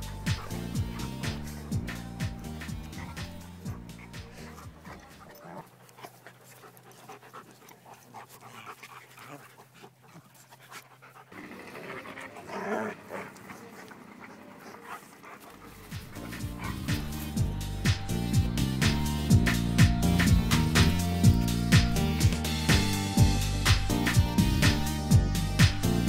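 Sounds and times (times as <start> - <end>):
dogs panting: 0.0 - 26.0
dogs scuffling: 0.3 - 19.0.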